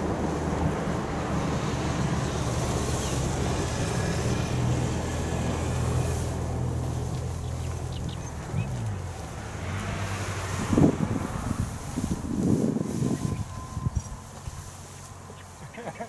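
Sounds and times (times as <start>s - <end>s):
low engine drone: 0.0s - 15.6s
wind on microphone: 9.8s - 14.7s.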